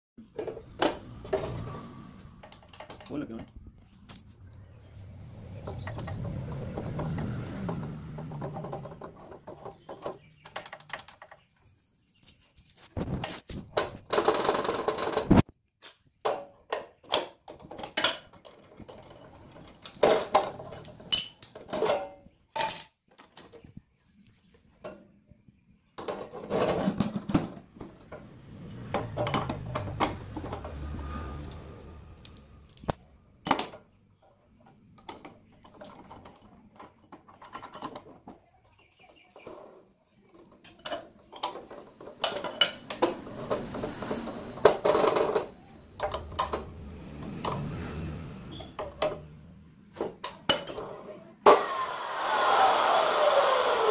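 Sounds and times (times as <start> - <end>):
metal clinks and clattering: 17.6 - 23.0, 31.7 - 33.7, 35.7 - 38.2, 40.5 - 46.7
saw motor whining: 42.8 - 48.8, 51.5 - 53.9.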